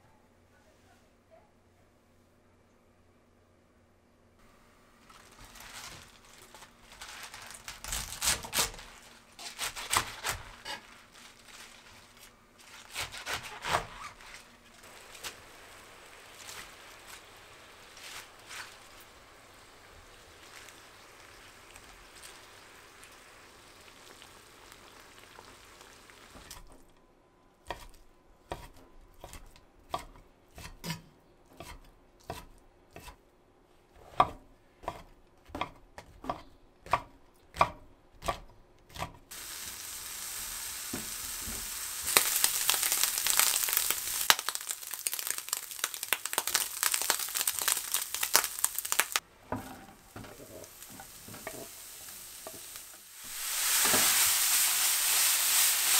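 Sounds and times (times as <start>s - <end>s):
leaves rustling: 5.0s - 26.3s, 39.3s - 49.2s, 50.0s - 55.9s
greens sizzling in a pan: 5.1s - 26.6s, 39.3s - 55.9s
knife chopping on wooden board: 27.7s - 33.2s, 34.0s - 39.2s.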